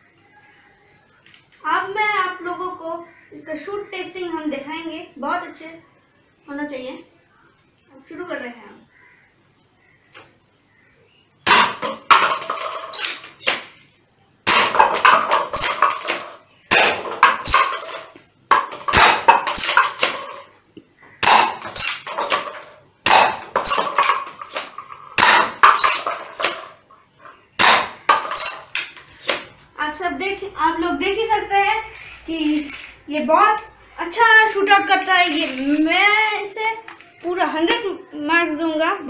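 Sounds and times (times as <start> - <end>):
toy gun shot snap: 11.5 - 11.9, 18.9 - 20.2, 21.2 - 22.0, 23.1 - 23.5, 27.6 - 29.5
paper cups clattering: 11.5 - 13.8, 14.5 - 29.6, 31.2 - 37.9.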